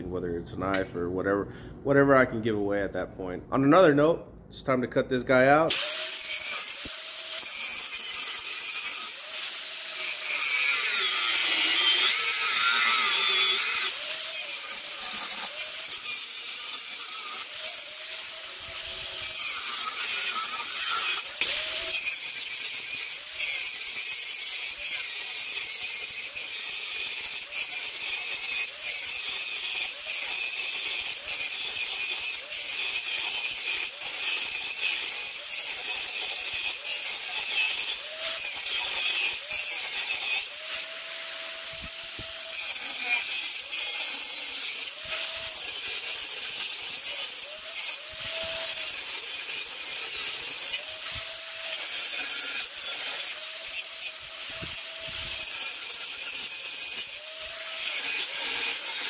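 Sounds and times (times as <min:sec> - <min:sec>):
angle grinder cutting metal: 0:05.7 - 0:59.0.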